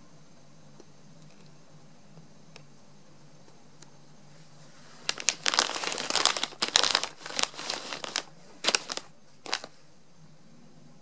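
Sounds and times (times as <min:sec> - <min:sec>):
plastic snack pouch rustling: 0:05.0 - 0:09.8.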